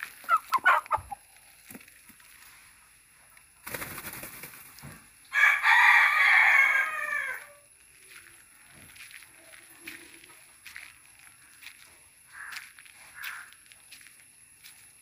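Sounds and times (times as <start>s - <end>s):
rooster flapping wings: 3.6s - 4.9s
rooster crowing: 5.3s - 7.7s.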